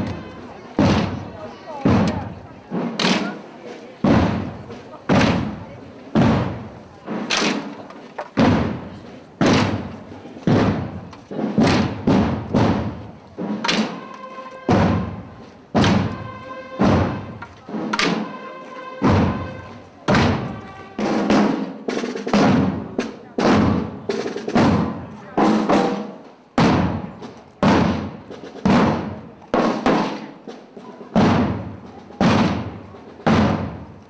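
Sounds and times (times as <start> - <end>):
drums beating slow march: 0.0 - 34.0
long held instrumental note: 14.0 - 14.8.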